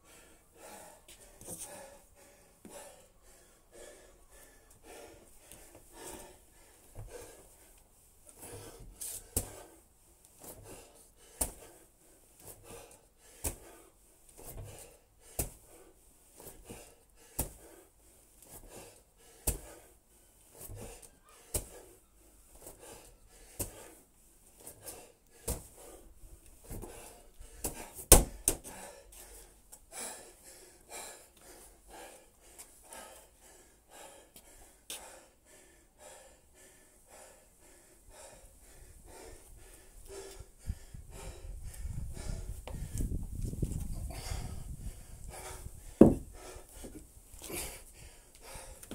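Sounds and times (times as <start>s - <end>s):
heavy panting: 0.1s - 9.8s, 10.4s - 43.2s, 43.8s - 48.9s
medicine ball thudding against wall: 15.4s - 15.6s, 27.6s - 28.7s, 46.0s - 46.3s.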